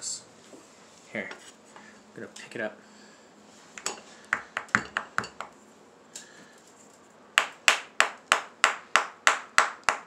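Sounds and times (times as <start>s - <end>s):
hammer tapping plaster block: 4.3s - 5.5s, 7.4s - 10.0s.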